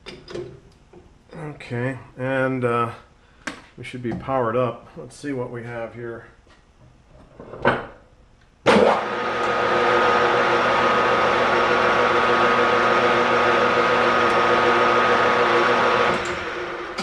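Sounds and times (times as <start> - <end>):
metal lathe running with a whine: 8.9 - 17.0.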